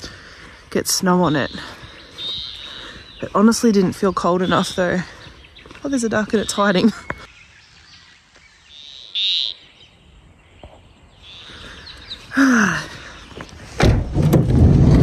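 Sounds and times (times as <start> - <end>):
high bird chirp: 1.0 - 13.3
falling bird call: 2.1 - 3.2.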